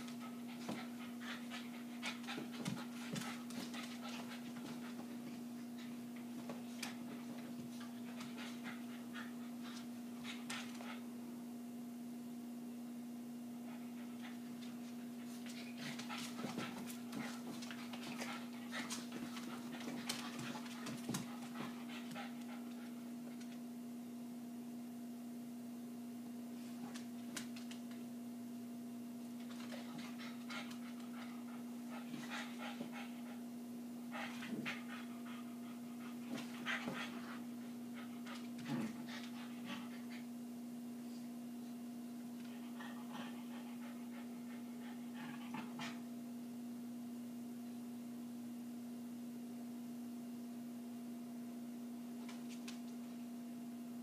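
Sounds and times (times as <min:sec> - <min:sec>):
dogs making breathy noises: 0:00.0 - 0:07.0, 0:29.5 - 0:33.5, 0:42.4 - 0:46.0
steady low hum: 0:00.0 - 0:54.0.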